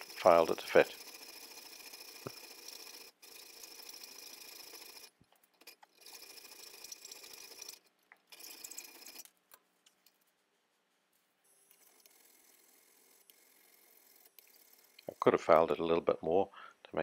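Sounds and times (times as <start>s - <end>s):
hacksaw cutting metal: 0.0s - 3.6s.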